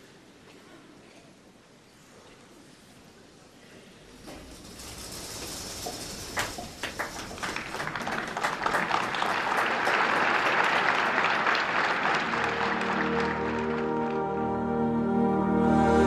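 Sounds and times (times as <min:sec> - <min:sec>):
audience applauding: 0:06.2 - 0:14.6.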